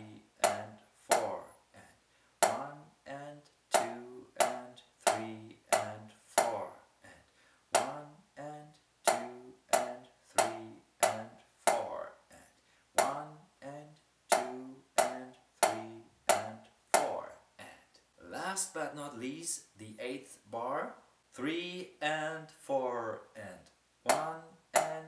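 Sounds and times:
drumsticks striking practice pad: 0:00.0 - 0:01.4, 0:02.4 - 0:02.8, 0:03.7 - 0:06.8, 0:07.8 - 0:08.1, 0:09.1 - 0:12.0, 0:13.0 - 0:13.3, 0:14.3 - 0:17.2, 0:24.1 - 0:25.0.

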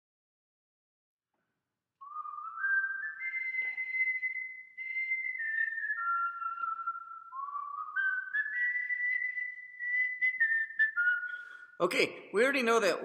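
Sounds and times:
person whistling a tune: 0:02.0 - 0:11.8.

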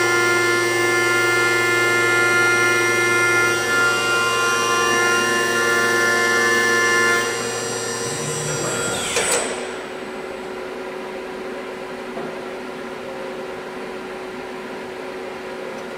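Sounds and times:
milling machine cutting whine: 0:00.0 - 0:10.7
steady cutter hum: 0:00.0 - 0:12.7.

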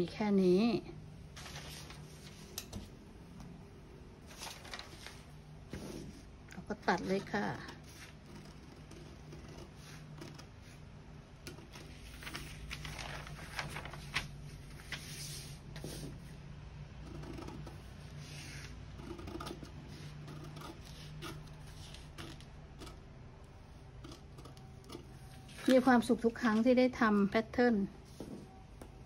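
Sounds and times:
low steady hum: 0:00.0 - 0:29.0
paper rustling: 0:01.4 - 0:02.9, 0:04.3 - 0:05.9, 0:11.7 - 0:16.1.

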